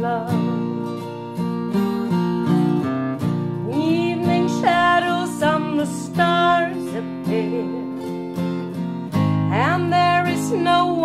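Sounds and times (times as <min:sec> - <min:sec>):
woman singing wordlessly: 0:00.0 - 0:00.8, 0:03.6 - 0:08.1, 0:09.4 - 0:11.0
acoustic guitar strumming: 0:00.0 - 0:11.0.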